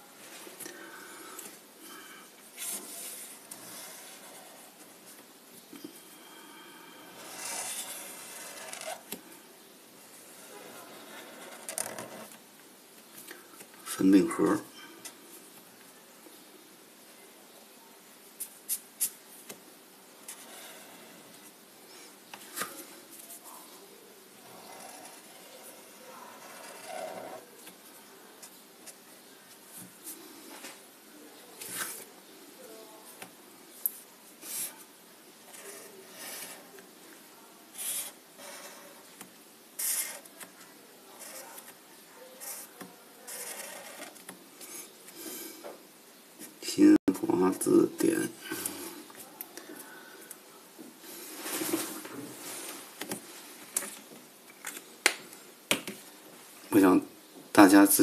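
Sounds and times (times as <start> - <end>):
faint steady hiss: 0.0 - 58.0
marker scratching on paper: 2.6 - 5.0, 7.2 - 9.1, 24.4 - 27.5, 35.5 - 36.8, 37.7 - 39.0, 39.8 - 40.4, 41.2 - 44.9.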